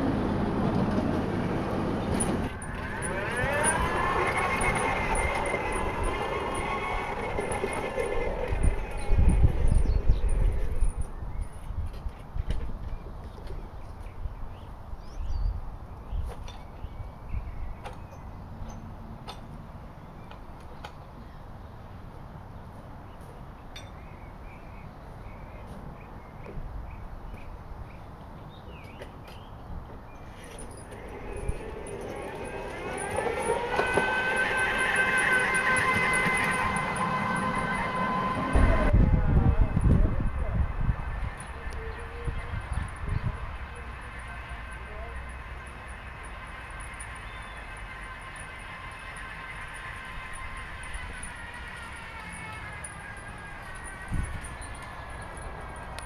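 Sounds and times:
electric motors whining: 0.1s - 11.6s, 30.2s - 56.0s.

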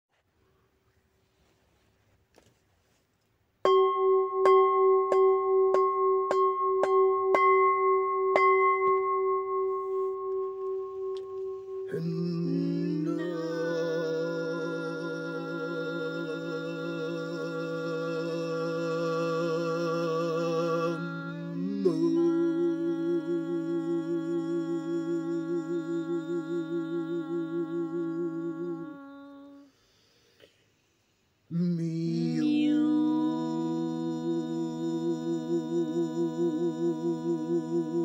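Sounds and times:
bowl bell ringing: 3.7s - 12.0s
humming drone: 11.8s - 29.6s.

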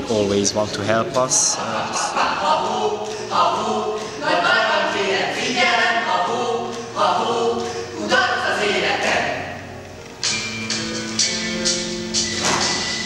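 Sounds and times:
group singing a cappella: 1.2s - 9.7s.

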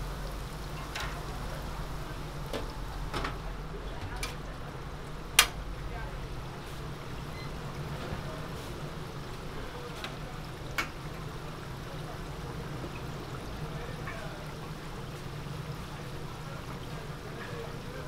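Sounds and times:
oil sizzling and bubbling in fryer: 0.0s - 18.0s.

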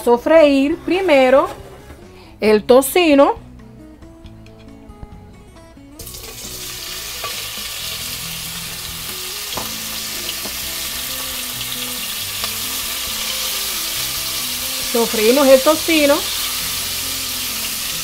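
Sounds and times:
bacon sizzling in hot oil: 6.0s - 18.0s.

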